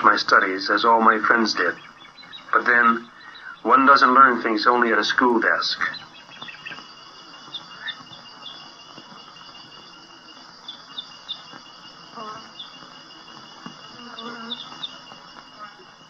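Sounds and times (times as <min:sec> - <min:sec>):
insects trilling: 0:00.0 - 0:16.0.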